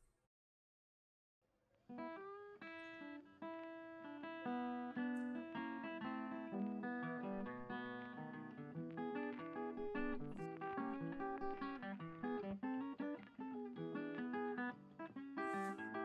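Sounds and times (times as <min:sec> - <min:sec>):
acoustic guitar music: 0:02.0 - 0:16.0.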